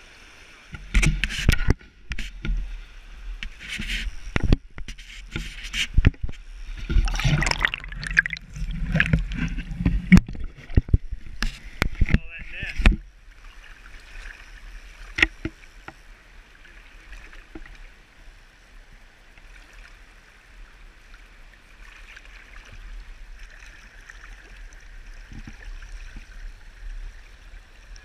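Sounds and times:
stream rushing over rocks: 6.8 - 12.8.

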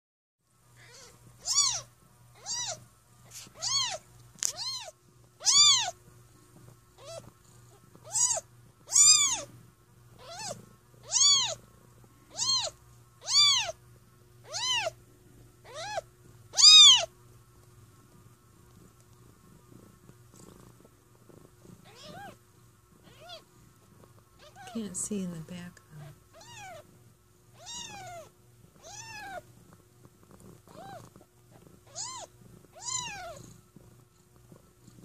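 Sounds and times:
cat purring: 0.7 - 35.0
kitten mewing: 0.8 - 6.0, 8.0 - 9.5, 10.2 - 11.6, 12.3 - 13.8, 14.4 - 15.0, 15.6 - 17.1, 21.8 - 22.4, 23.1 - 23.5, 26.0 - 26.8, 27.6 - 29.4, 30.7 - 31.0, 31.8 - 33.4.

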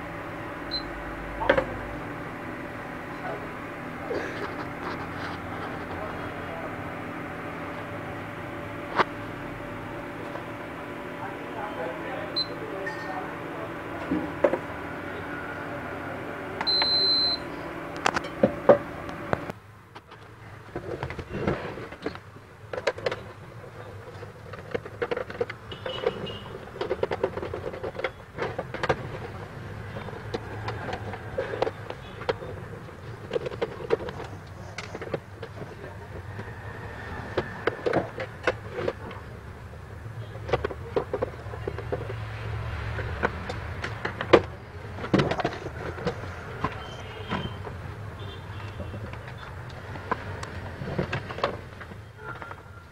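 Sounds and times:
steady low hum: 0.0 - 19.6.

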